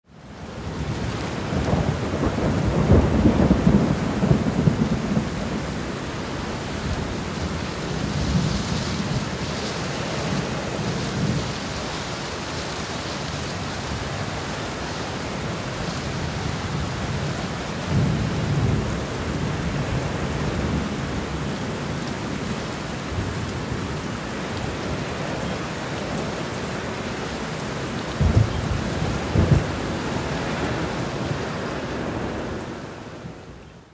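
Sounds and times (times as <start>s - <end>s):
steady rain: 0.0s - 33.9s
thunder rumbling: 0.8s - 11.7s, 27.5s - 33.4s.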